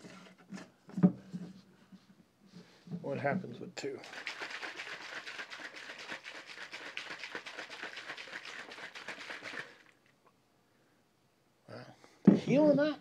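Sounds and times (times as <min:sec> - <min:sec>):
drink sloshing in shaken bottle: 0:04.0 - 0:10.1.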